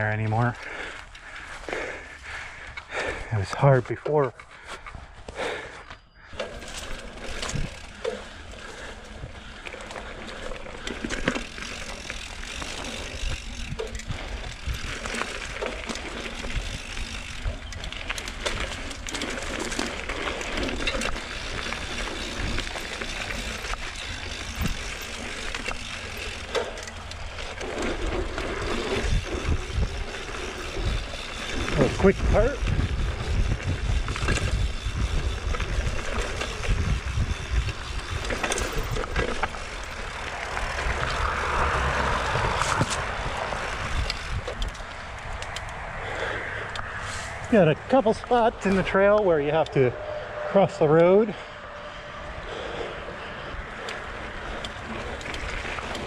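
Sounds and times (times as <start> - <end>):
bike rattling over roots: 0.0 - 49.9, 50.6 - 56.0
bike tyre and drivetrain noise: 0.0 - 56.0.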